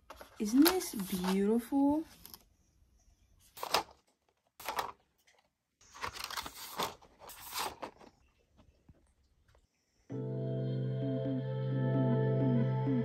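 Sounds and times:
rustling and scraping of plastic trays: 0.0s - 2.4s, 3.4s - 8.7s.

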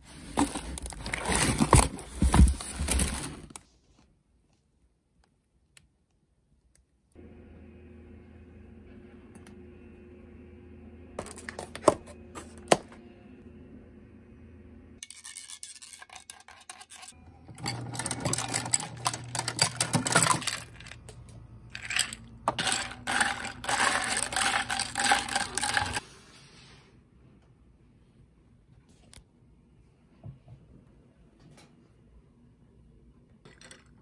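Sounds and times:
ice rattling in a glass: 17.6s - 21.0s, 21.8s - 26.0s.

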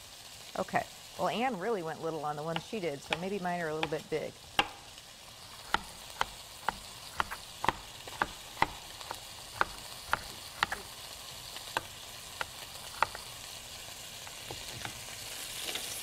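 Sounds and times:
meat sizzling in a skillet: 0.0s - 16.0s
knife chopping on cutting board: 2.6s - 4.9s, 5.6s - 11.0s, 11.7s - 13.3s.

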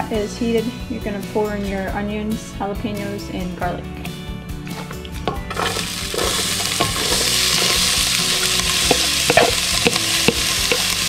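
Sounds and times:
vegetables sizzling in hot oil: 5.5s - 11.0s
wooden spatula knocking on pot: 8.5s - 11.0s.

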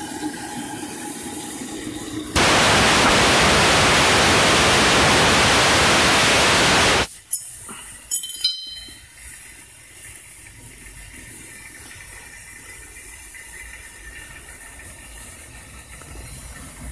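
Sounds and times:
steam rushing loudly: 2.4s - 7.1s
faint steam hiss: 2.4s - 8.1s.

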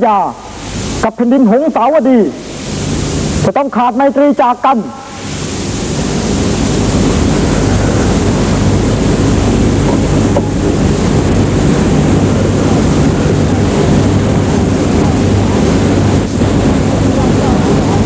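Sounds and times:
loud rushing noise: 2.0s - 3.6s, 4.8s - 18.0s.

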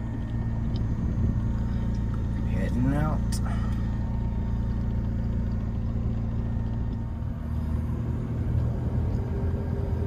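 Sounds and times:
car engine running: 0.0s - 10.0s.

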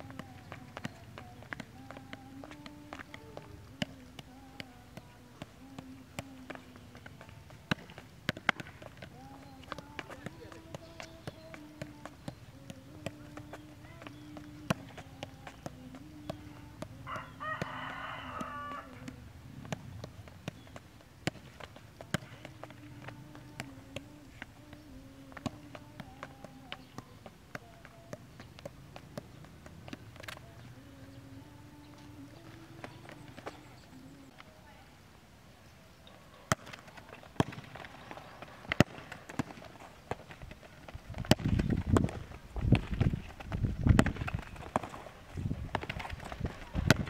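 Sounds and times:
ball taps off foot: 0.0s - 30.5s.

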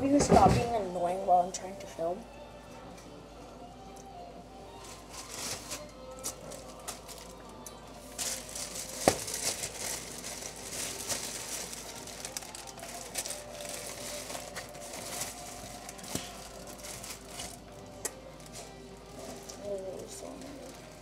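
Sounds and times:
plastic bag crinkling: 4.8s - 21.0s.

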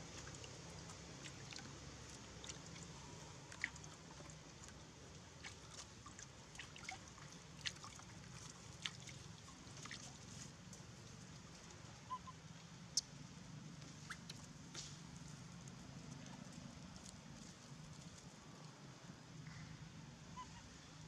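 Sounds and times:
monkeys lapping water: 0.0s - 14.6s
small wet clicks and splashes: 0.0s - 19.7s.

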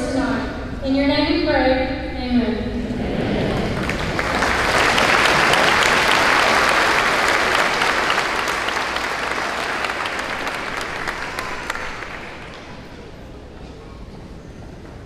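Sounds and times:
audience applauding: 3.4s - 13.4s.

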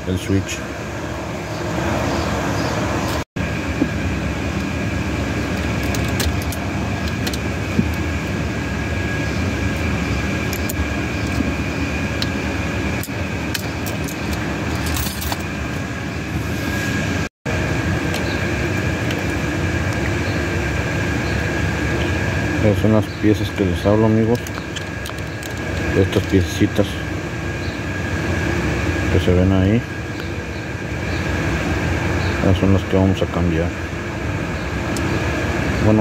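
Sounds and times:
steady background hum: 0.0s - 36.0s
keys jangling: 13.5s - 15.5s
small metal clicks: 24.3s - 26.4s.

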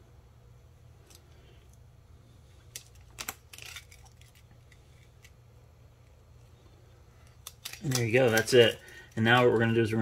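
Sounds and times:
steady low hum: 0.0s - 10.0s
film peeling with crinkling: 2.5s - 5.4s, 6.0s - 10.0s.

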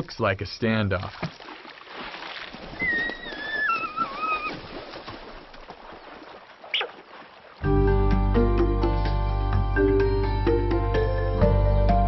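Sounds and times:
water sloshing and splashing: 0.9s - 7.7s.

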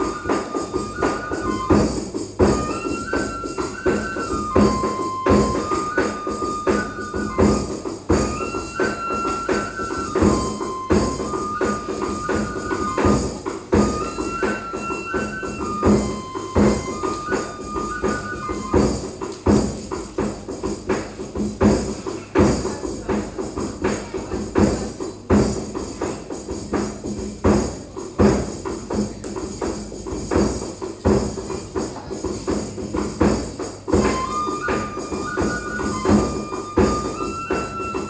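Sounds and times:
flute playing held notes: 0.0s - 19.6s, 33.9s - 38.0s
drum and percussion strikes: 0.0s - 38.0s.

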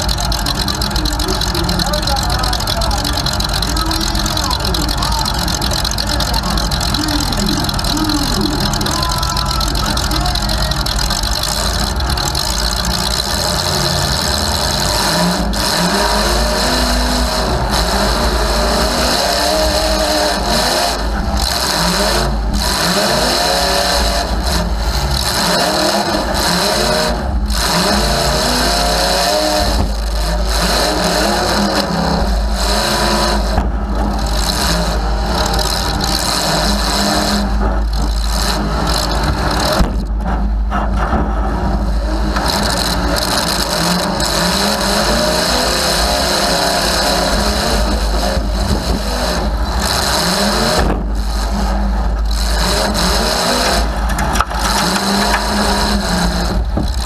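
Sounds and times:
car engine revving loud: 0.0s - 57.0s.

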